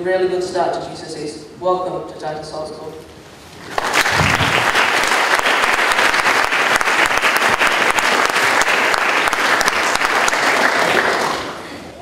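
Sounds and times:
audience applauding: 3.7s - 11.8s.

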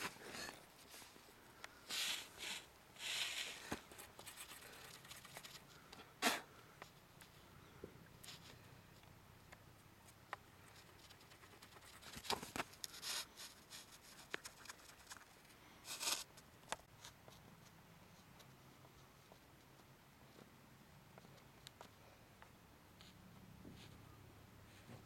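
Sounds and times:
wax scraping on ski: 1.9s - 3.8s.

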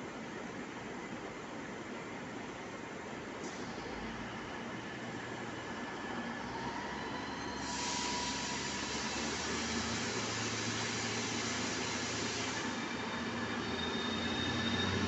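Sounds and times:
loud air hiss: 7.4s - 13.3s.

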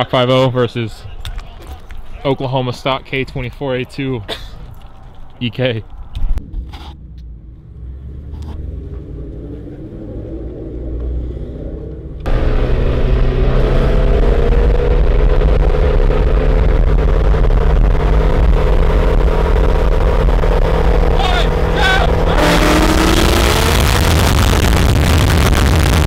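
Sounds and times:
cars racing at speed: 6.4s - 26.0s
cars idling: 19.1s - 26.0s.

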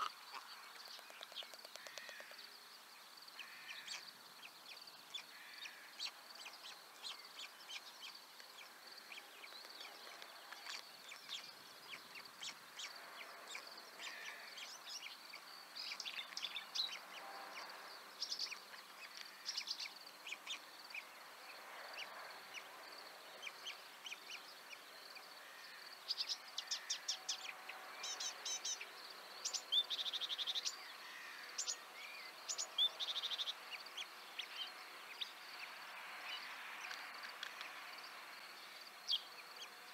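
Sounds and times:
rapid bird trills: 0.0s - 2.5s
songbirds chirping and whistling: 0.0s - 39.9s.

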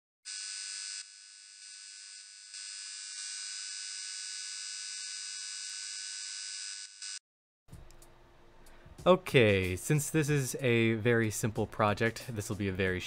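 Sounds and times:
high electric buzz: 0.3s - 7.2s.

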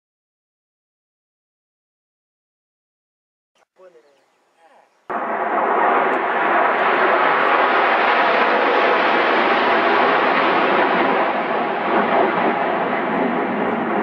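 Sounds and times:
jet aircraft flying over: 5.1s - 14.0s.

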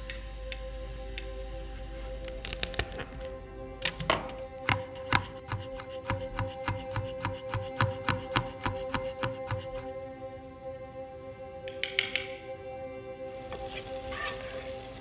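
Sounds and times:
garlic clove crunch: 2.2s - 3.3s.

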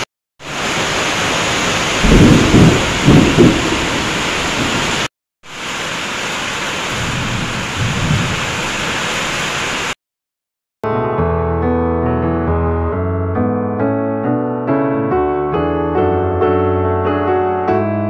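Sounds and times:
heavy rain on gravel and plants: 0.4s - 10.0s
low rumbles: 2.0s - 5.0s.

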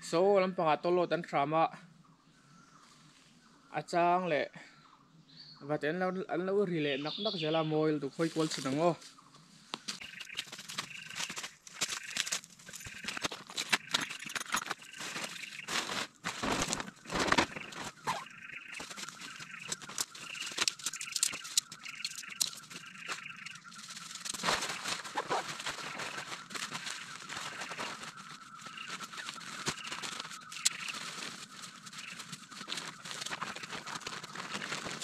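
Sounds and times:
dry leaves crackling: 8.2s - 35.0s
tent nylon rustling: 10.0s - 35.0s.

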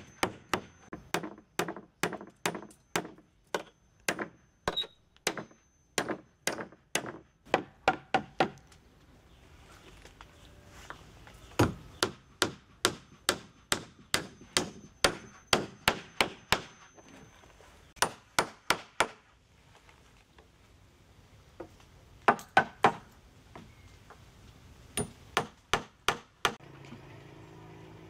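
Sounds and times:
hammer striking wood: 0.0s - 8.6s, 11.6s - 16.9s, 18.0s - 19.2s, 22.3s - 23.1s, 25.0s - 26.6s.

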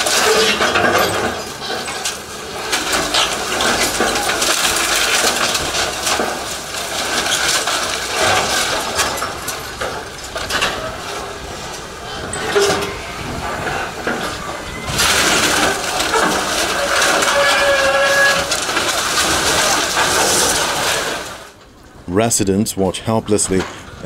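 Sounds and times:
concrete and blocks clattering down: 0.0s - 21.6s
excavator engine rumbling: 0.0s - 24.0s.

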